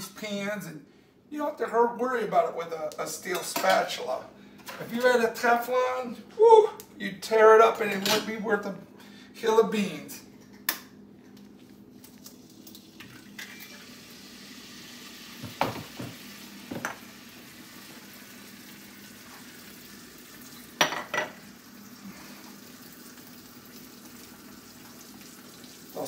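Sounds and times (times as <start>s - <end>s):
egg sizzling in a skillet: 12.2s - 26.0s
kitchen utensils knocking and clinking: 20.8s - 21.4s.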